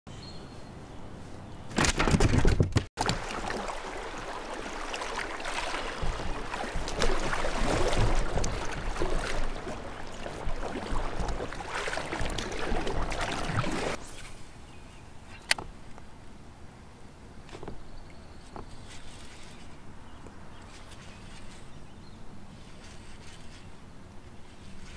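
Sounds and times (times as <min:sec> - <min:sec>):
paddle splashing in water: 0:03.0 - 0:14.3.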